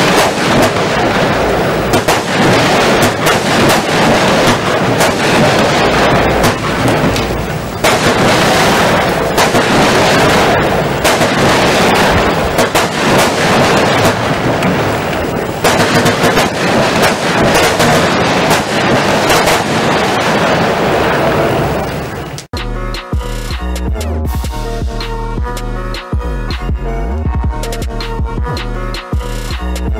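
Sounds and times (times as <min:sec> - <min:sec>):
firework cake shots and bursts: 0:00.0 - 0:22.4.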